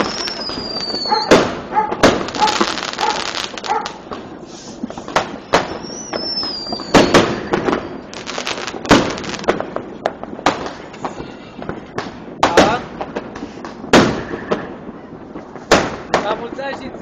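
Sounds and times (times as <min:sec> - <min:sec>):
firework whistle: 0:00.0 - 0:01.5, 0:02.2 - 0:03.8, 0:04.5 - 0:09.5
fireworks bangs and crackles: 0:00.0 - 0:17.0.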